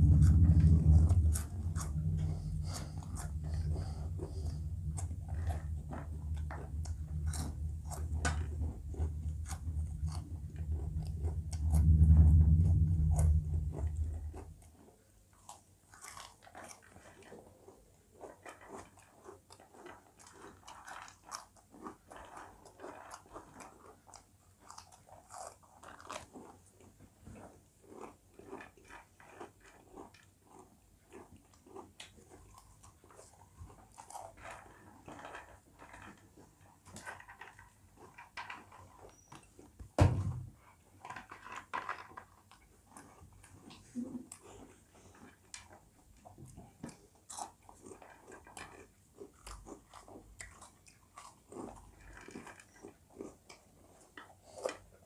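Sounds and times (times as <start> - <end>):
loud low rumble: 0.0 - 14.6.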